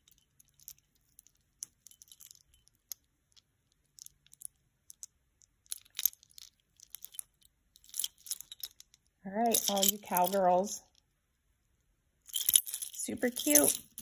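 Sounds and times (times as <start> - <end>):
metal chain clinking: 0.0 - 2.9, 5.7 - 10.8, 12.3 - 14.0.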